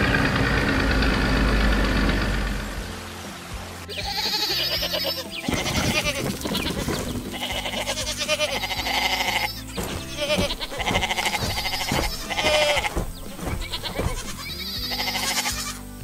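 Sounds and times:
light background music: 2.0s - 16.0s
sheep bleating: 3.9s - 15.9s.

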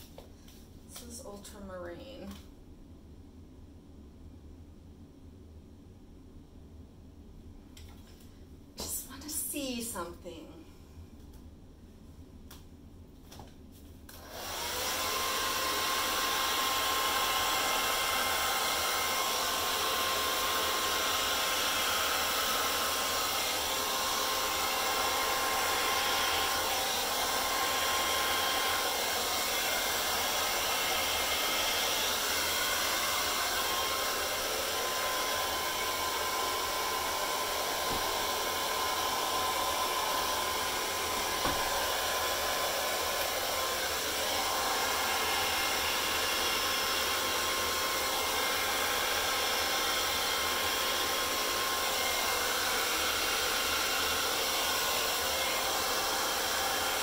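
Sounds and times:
hair dryer running: 14.1s - 57.0s.

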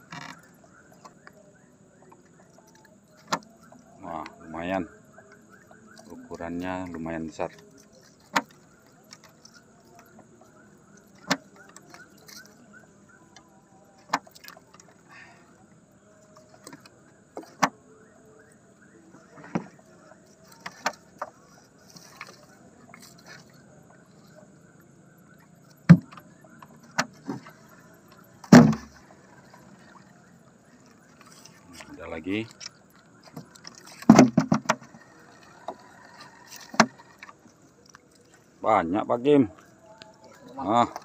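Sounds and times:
knocks and thumps on wooden boat: 6.0s - 12.4s, 19.3s - 19.9s, 25.6s - 30.1s, 33.2s - 37.4s.

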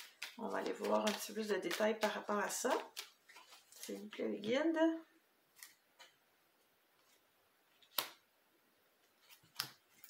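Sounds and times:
cards clicking and snapping: 0.0s - 3.2s, 7.8s - 8.2s, 9.4s - 10.0s.

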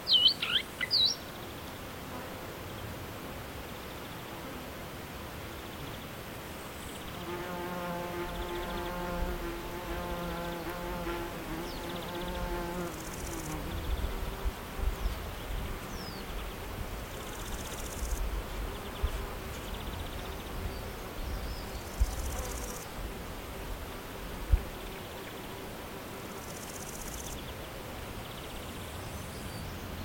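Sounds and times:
flying insect buzzing: 7.0s - 16.4s, 17.1s - 27.4s.

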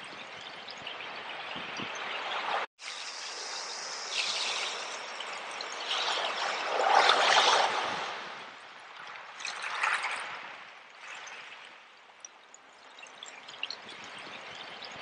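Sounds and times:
hissing foam wash: 2.8s - 8.2s
small ocean waves breaking: 4.7s - 11.9s.

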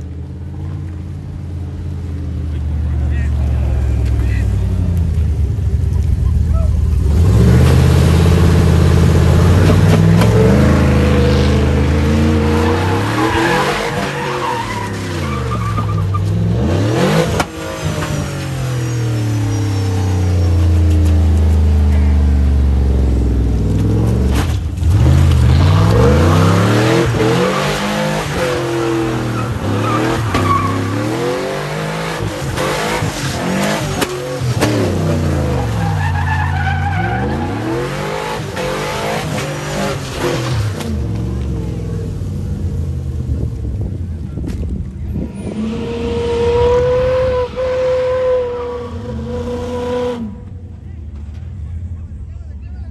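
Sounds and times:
car engine revving hard: 7.0s - 15.7s, 16.3s - 21.0s, 24.8s - 41.4s.

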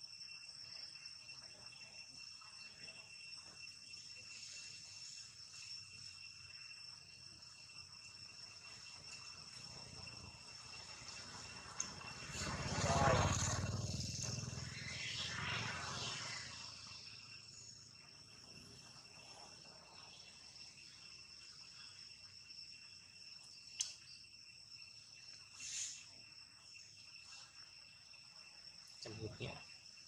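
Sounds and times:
high-pitched insect drone: 0.0s - 30.0s
sharp click: 23.8s - 24.0s
short hiss: 25.6s - 26.1s.

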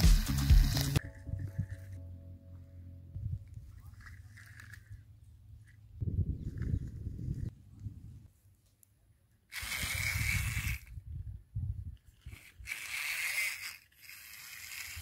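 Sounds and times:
small electric toy motor: 9.5s - 11.0s, 12.0s - 15.0s.

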